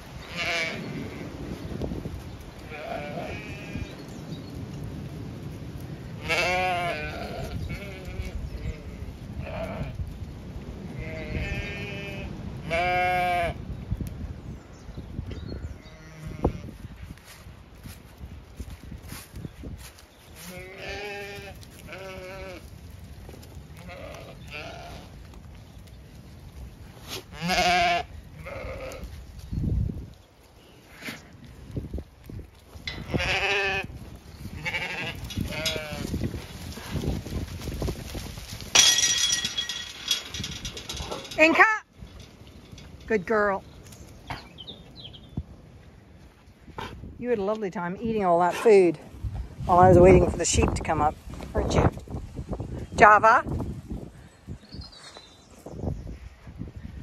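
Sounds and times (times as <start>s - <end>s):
low wind rumble: 0.0s - 57.0s
sheep bleating: 0.2s - 1.2s, 2.7s - 4.0s, 6.2s - 9.9s, 11.0s - 13.6s, 20.4s - 22.7s, 23.8s - 25.1s, 27.3s - 29.1s, 33.0s - 34.0s, 34.6s - 36.2s.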